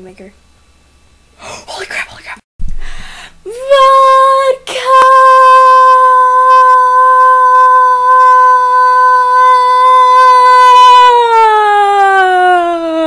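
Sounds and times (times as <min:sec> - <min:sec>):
girl yelling a long high note: 0:03.5 - 0:12.6.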